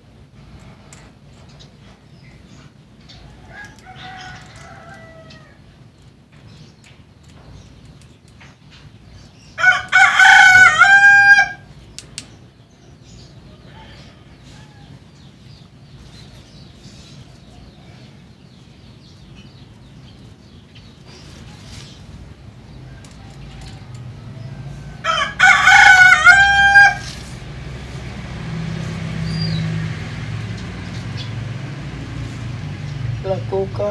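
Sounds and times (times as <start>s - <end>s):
rooster crowing: 3.3s - 5.6s, 9.6s - 11.7s, 13.5s - 15.1s, 22.9s - 27.4s.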